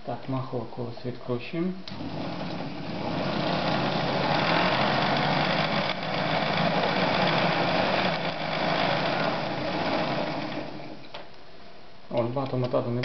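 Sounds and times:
sewing machine motor running: 1.9s - 11.1s.

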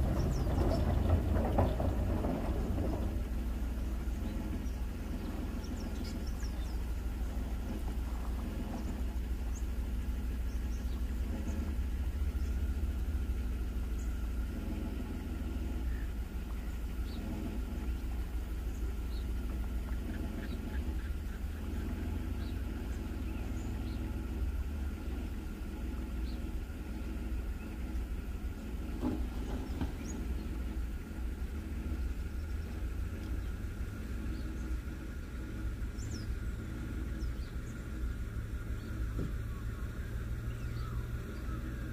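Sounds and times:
engine idling: 0.0s - 41.9s
faint bird chirps: 37.0s - 41.9s.

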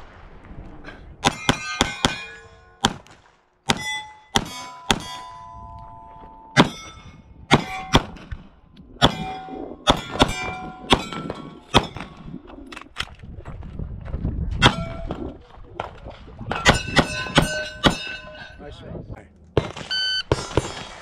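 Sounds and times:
pistol shots: 1.2s - 5.2s
steel target clanging: 3.7s - 8.2s, 16.5s - 18.7s.

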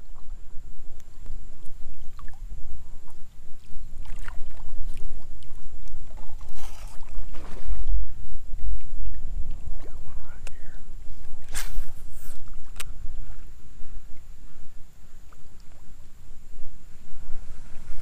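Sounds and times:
wind buffeting the microphone: 0.0s - 18.0s
water lapping against a board: 1.0s - 14.6s.

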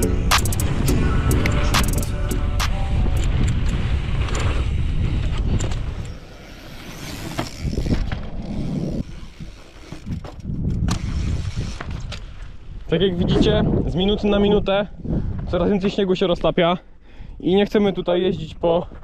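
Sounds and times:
wind buffeting microphone: 0.0s - 16.0s
bike tyres clicking and knocking: 5.2s - 12.6s.

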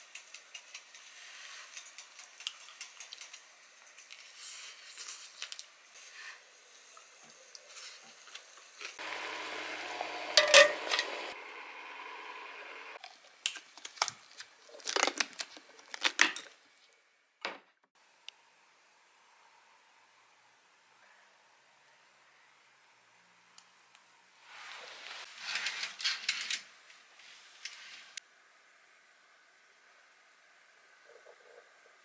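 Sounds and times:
metal lid clinking on pot: 10.4s - 11.0s.

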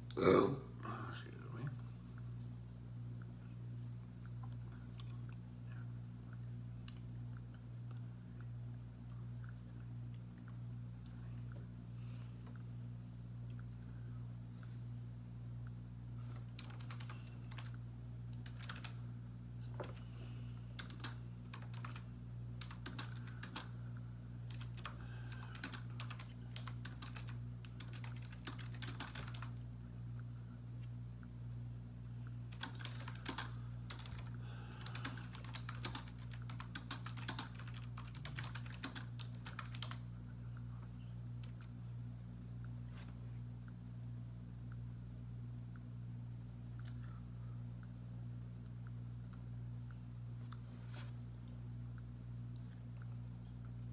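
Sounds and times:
steady low hum: 0.0s - 53.9s
keyboard typing: 16.6s - 19.0s, 20.8s - 22.0s, 22.6s - 23.7s, 24.5s - 29.6s, 32.5s - 40.0s.

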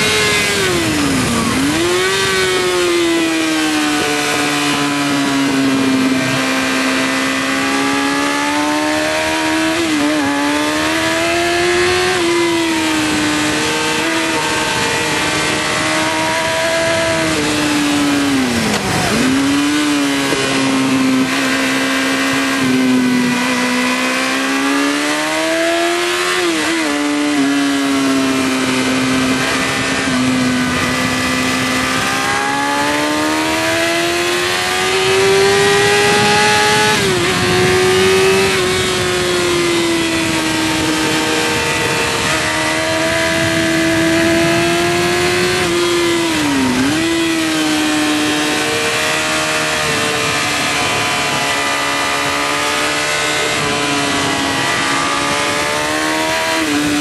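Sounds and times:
motorcycle engine at high revs: 0.0s - 57.0s
wind rush: 0.0s - 57.0s.

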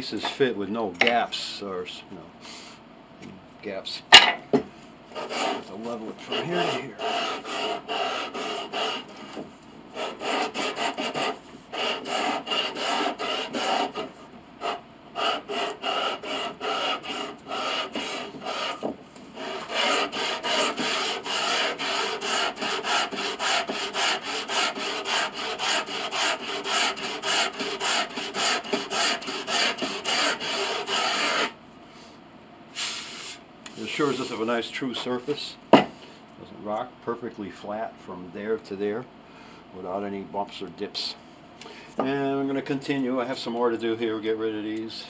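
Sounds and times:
sandpaper rasping on wood: 5.2s - 9.4s, 10.0s - 31.6s.

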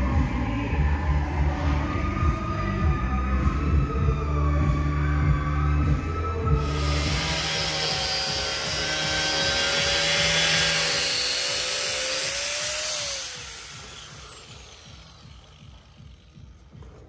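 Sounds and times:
angle grinder cutting plastic: 6.6s - 17.0s.

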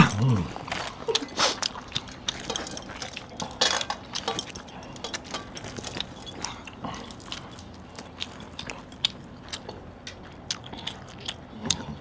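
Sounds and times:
metal rings clinking on steel plates: 2.0s - 9.0s.

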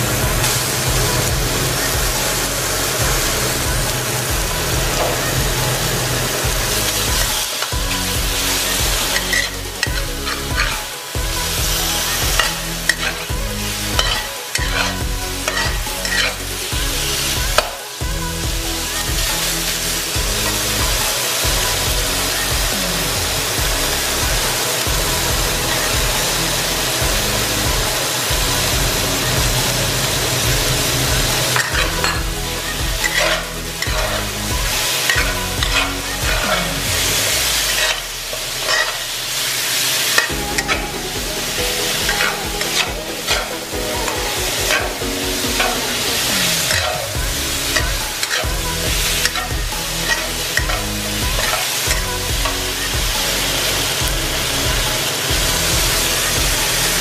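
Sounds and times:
metal spatula scraping wok: 0.0s - 18.0s, 18.8s - 57.0s
meat sizzling in a wok: 0.0s - 57.0s.

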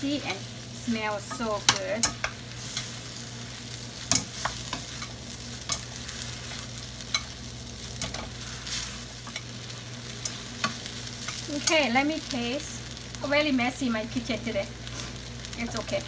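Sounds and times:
noodles sizzling in a skillet: 0.0s - 16.0s
utensils scraping and clacking on pan: 1.1s - 3.2s, 4.0s - 12.1s.

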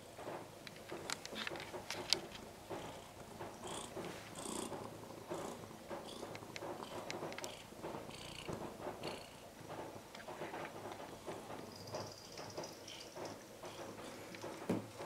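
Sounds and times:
cat purring: 2.5s - 9.5s.

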